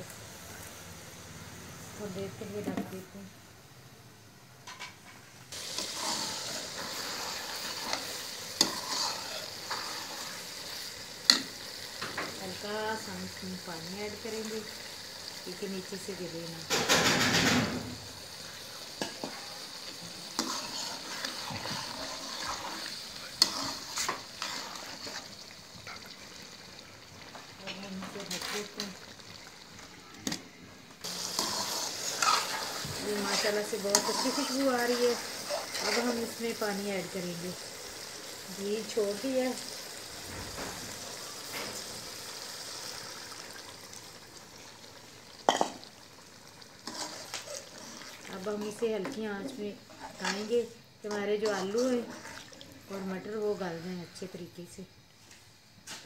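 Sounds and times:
curry sizzling: 4.6s - 56.0s
water hissing in hot wok: 5.4s - 56.0s
metal spoon scraping pan: 5.8s - 10.3s, 20.3s - 25.3s, 31.2s - 36.4s, 46.8s - 52.5s.

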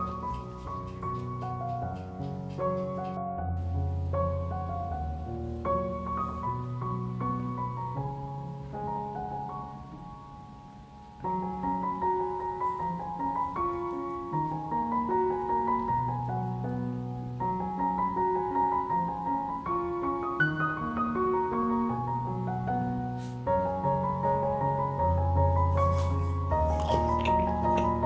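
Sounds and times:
gentle piano music: 0.0s - 28.0s.

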